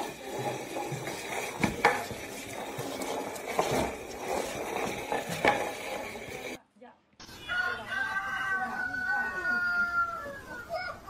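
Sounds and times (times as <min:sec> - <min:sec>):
flowerpot scraping along tiles: 0:00.0 - 0:06.6.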